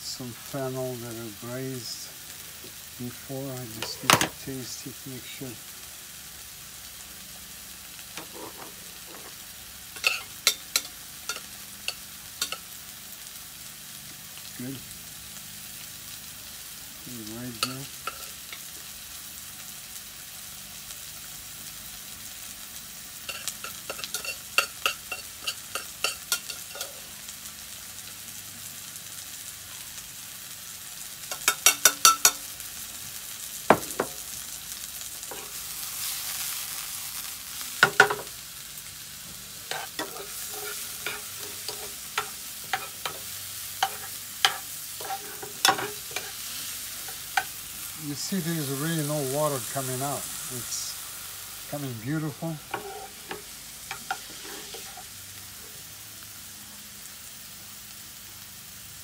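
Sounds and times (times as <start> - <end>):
mushrooms sizzling in a frying pan: 0.0 - 59.0
utensils clinking on pans and plates: 3.8 - 4.4, 8.2 - 9.4, 10.0 - 12.6, 23.3 - 27.1, 31.3 - 32.5, 37.8 - 38.3, 39.7 - 46.4, 52.7 - 55.1.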